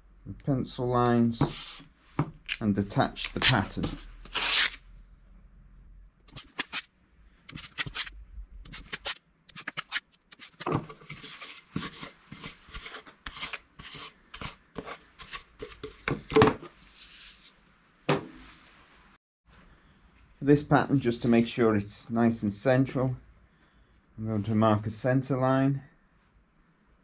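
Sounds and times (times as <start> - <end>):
masking tape ripping and peeling: 2.5 - 4.8.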